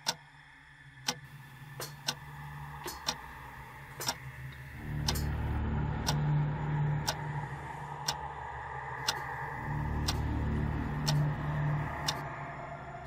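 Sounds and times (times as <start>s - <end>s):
low steady hum: 0.0s - 13.0s
clock ticking: 1.0s - 3.3s, 4.0s - 4.2s, 4.8s - 7.4s, 9.0s - 12.2s.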